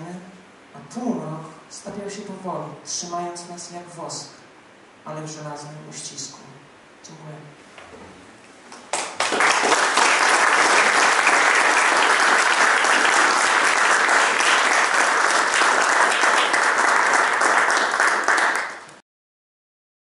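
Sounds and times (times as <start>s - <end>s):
audience applause: 8.9s - 19.0s.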